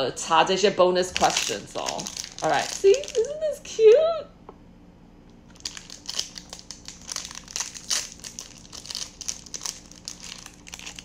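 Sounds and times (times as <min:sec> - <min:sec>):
plastic wrapper crackling: 0:01.1 - 0:03.5, 0:05.5 - 0:11.0.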